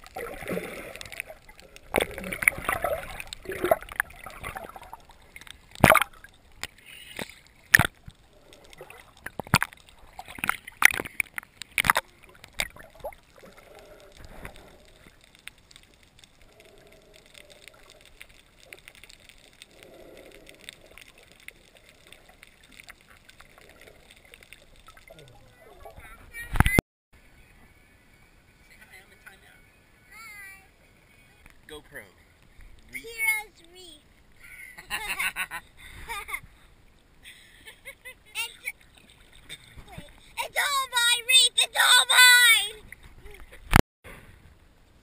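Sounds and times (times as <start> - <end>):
faint low hums and gurgles: 0.0 - 33.0
underwater water noise: 0.0 - 45.0
sharp knocks underwater: 1.9 - 8.2, 8.8 - 13.1.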